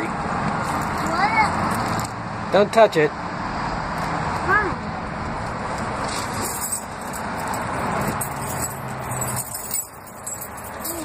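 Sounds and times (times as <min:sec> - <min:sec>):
keys jangling in a door lock: 0:06.3 - 0:11.0.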